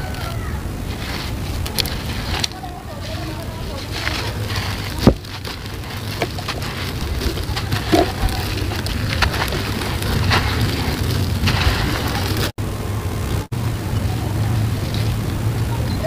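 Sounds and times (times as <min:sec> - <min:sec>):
grains cracking and falling on sand: 0:00.0 - 0:12.6
sand-and-cement block crunching: 0:00.0 - 0:12.6.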